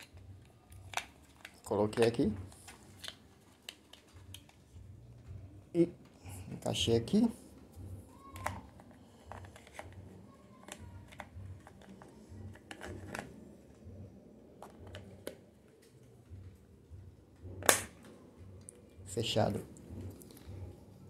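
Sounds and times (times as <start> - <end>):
battery cover snapping shut: 17.6 - 18.0.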